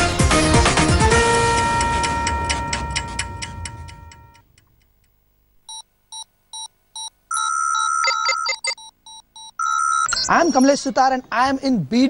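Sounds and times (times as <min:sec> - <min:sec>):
ticking news music sting: 0:01.1 - 0:04.4
steady electronic tone: 0:01.3 - 0:04.5
electronic beeps: 0:05.7 - 0:10.9.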